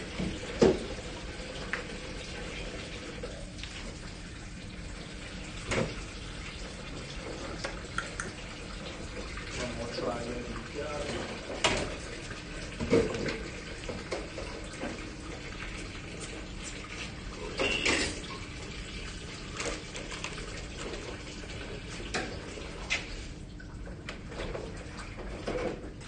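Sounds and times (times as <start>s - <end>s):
tap running into sink: 0.1s - 1.0s, 5.6s - 6.0s
dishes and utensils clattering: 17.5s - 18.3s.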